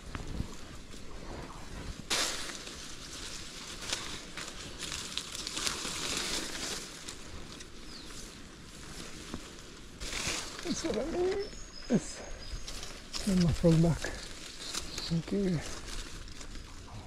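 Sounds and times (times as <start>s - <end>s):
rustling and crackling: 0.0s - 17.0s.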